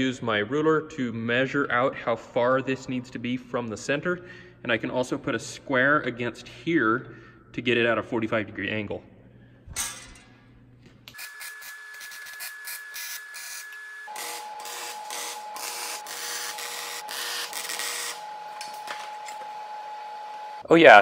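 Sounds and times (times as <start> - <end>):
welding arc crackling: 11.1 - 19.4.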